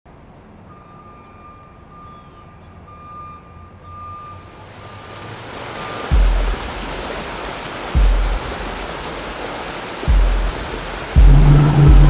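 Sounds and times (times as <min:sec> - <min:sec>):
faint steady high tone: 0:00.6 - 0:04.6
rushing hiss: 0:04.8 - 0:12.0
low rumble: 0:11.2 - 0:12.0.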